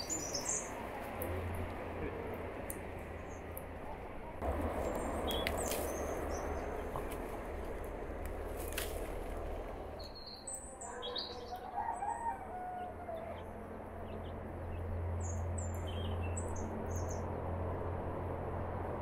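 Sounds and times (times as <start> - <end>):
small birds chirping: 0.0 - 1.4, 4.8 - 12.1, 12.8 - 17.5
low steady rumble: 0.7 - 10.2.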